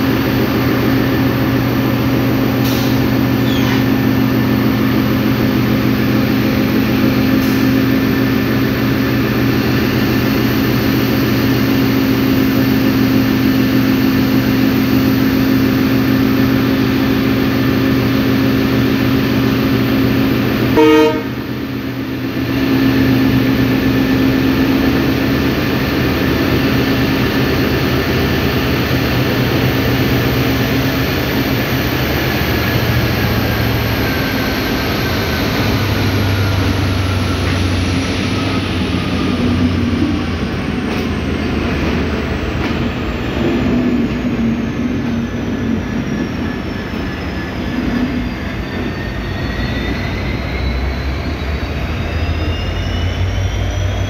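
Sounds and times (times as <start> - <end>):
diesel locomotive engine humming: 0.0 - 54.0
locomotive horn toot: 20.6 - 21.6.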